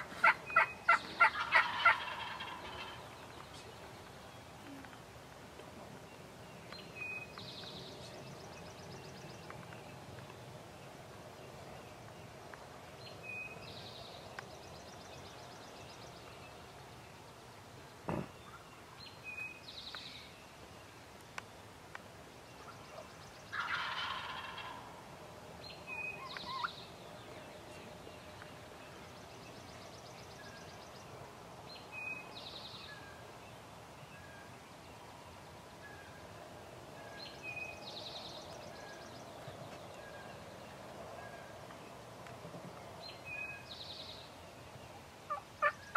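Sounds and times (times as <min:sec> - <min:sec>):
turkey gobbling: 0:00.0 - 0:03.0, 0:23.5 - 0:24.8, 0:26.2 - 0:26.7, 0:45.3 - 0:45.8
songbird calls: 0:00.0 - 0:05.2, 0:05.9 - 0:10.4, 0:25.6 - 0:35.1, 0:42.8 - 0:45.9.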